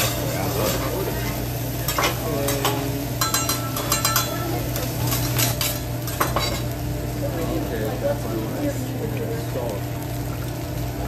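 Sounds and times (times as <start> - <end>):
metal spatulas scraping on griddle: 0.0 - 6.7.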